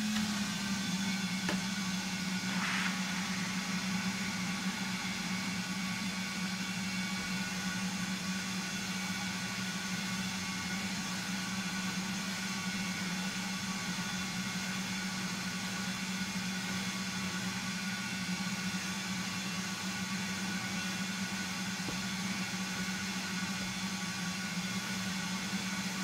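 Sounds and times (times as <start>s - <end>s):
vacuum cleaner running: 0.0s - 26.0s.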